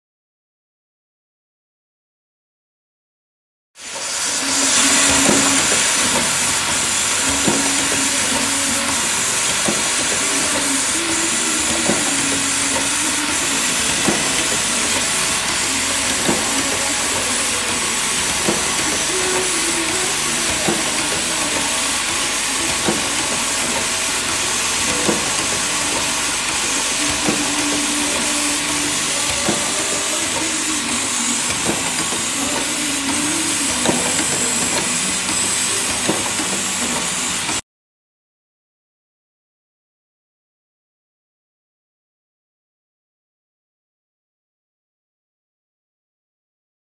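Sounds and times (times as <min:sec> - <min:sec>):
machine hissing: 0:03.8 - 0:37.6.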